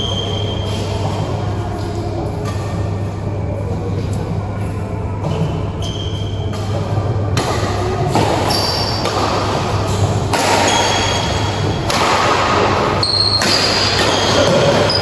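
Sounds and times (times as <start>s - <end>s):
steady low hum: 0.0s - 15.0s
shoes squeaking on court floor: 5.4s - 6.8s
rackets hitting shuttlecock: 6.1s - 15.0s.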